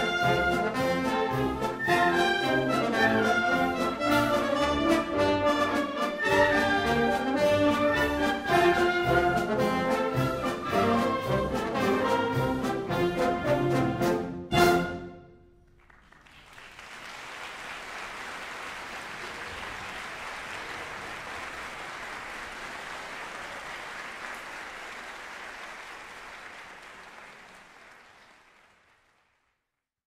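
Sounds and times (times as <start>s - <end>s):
audience applauding: 15.7s - 29.6s.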